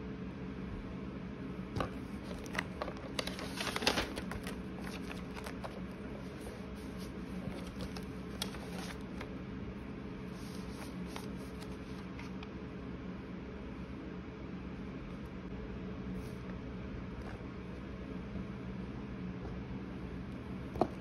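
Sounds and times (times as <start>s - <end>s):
low room hum: 0.0s - 21.0s
paper rustling: 1.8s - 9.3s, 10.3s - 12.4s.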